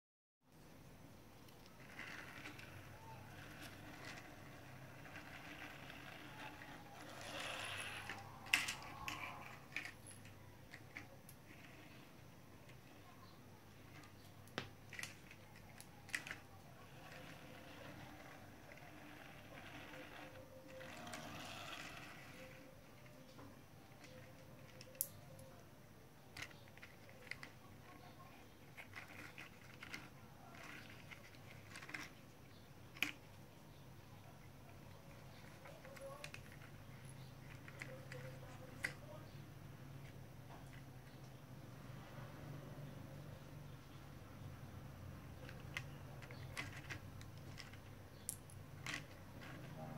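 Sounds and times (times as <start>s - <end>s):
plastic toys rolling on tiles: 1.3s - 49.9s
plastic toys clicking: 1.4s - 33.4s, 34.6s - 39.3s, 45.2s - 49.9s
plastic toy clicks: 1.5s - 12.0s, 13.9s - 22.6s.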